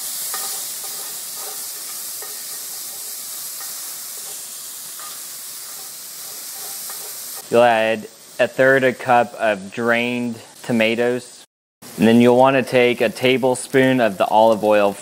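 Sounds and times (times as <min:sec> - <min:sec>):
metal spoon scraping a pan: 0:00.0 - 0:07.4
garlic sizzling in hot oil: 0:00.0 - 0:11.0, 0:11.8 - 0:15.0.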